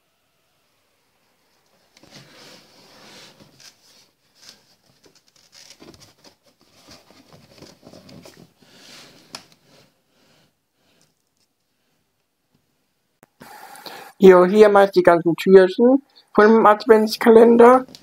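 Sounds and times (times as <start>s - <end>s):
cardboard rustling and scraping: 1.9s - 9.3s.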